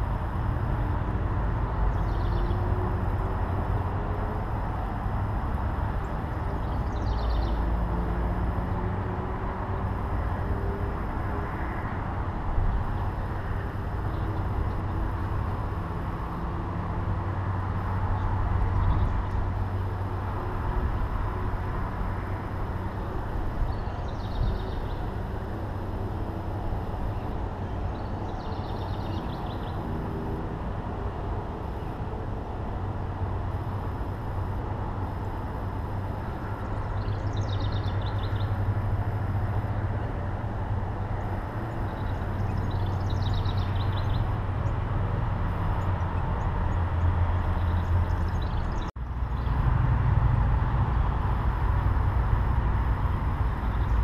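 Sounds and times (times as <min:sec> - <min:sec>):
low outdoor rumble: 0:00.0 - 0:54.0
songbird chirps and trills: 0:06.0 - 0:07.8.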